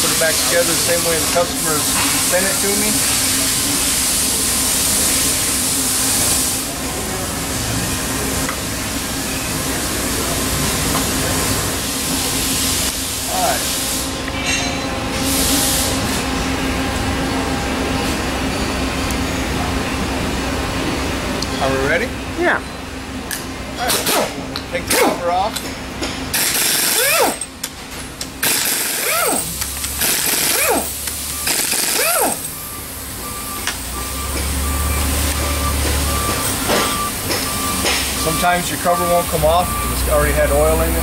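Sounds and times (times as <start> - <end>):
workshop low hum: 0.0 - 41.0
impact wrench winding down: 26.3 - 27.5, 28.4 - 32.6
backup alarm beeping: 30.9 - 41.0.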